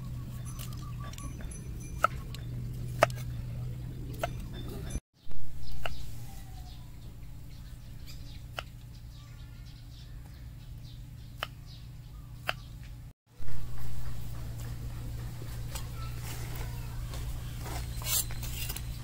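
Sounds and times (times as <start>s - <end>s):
low hum: 0.0s - 19.0s.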